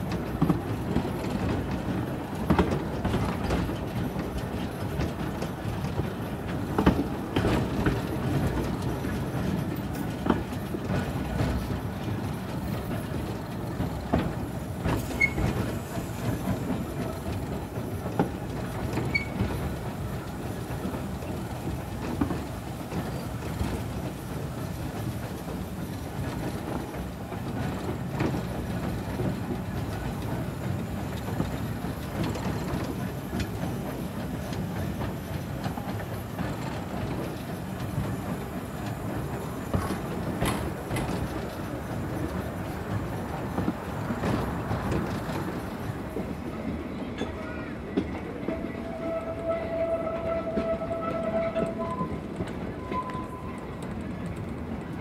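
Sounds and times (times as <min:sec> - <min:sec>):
steam locomotive rumble: 0:00.0 - 0:55.0
wheels clicking over rail joints: 0:00.0 - 0:55.0.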